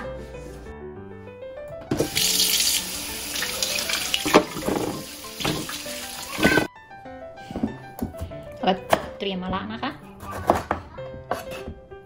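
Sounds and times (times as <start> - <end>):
faucet running into plastic bowl: 2.0 - 6.7
water splashing: 2.0 - 6.7.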